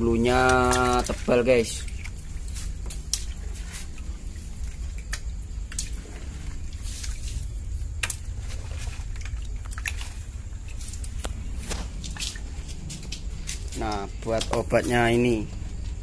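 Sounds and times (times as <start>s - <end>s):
water splashing in plastic bucket: 0.0s - 12.7s
steady low rumble: 0.0s - 16.0s
sharp drip-like clicks: 0.1s - 16.0s.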